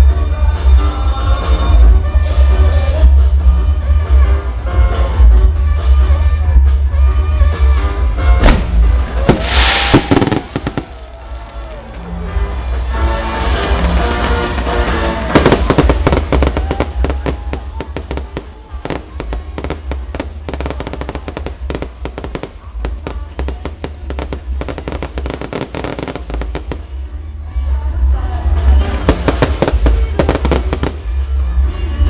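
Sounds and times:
fireworks bangs and crackling: 8.2s - 27.6s, 28.5s - 32.0s
loud music with heavy bass: 11.9s - 32.0s.

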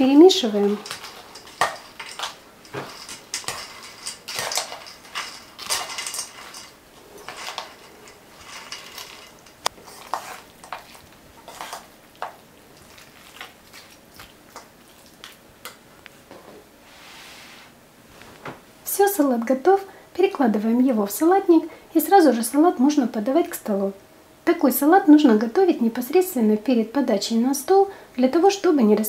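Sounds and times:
wet rustle of salad: 0.3s - 15.5s
fork clinking in metal bowl: 0.6s - 10.9s.

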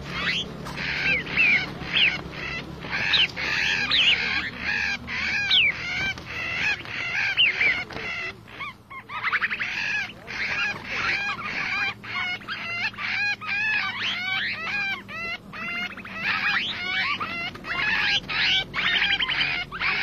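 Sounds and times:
flock of birds chirping: 0.0s - 20.0s.

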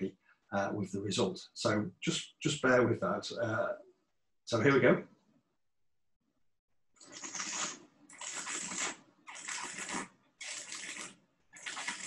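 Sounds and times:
person slurping wine: 7.0s - 12.0s.

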